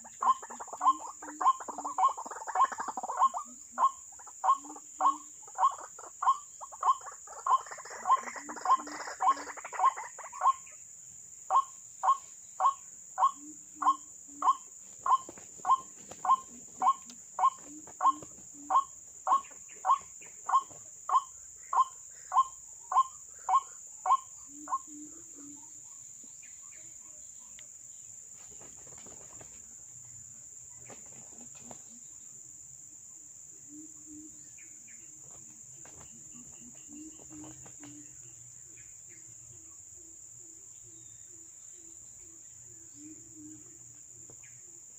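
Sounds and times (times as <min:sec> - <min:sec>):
bird calling kwak notes: 0:00.0 - 0:10.8, 0:11.5 - 0:25.8
high insect drone: 0:00.0 - 0:44.9.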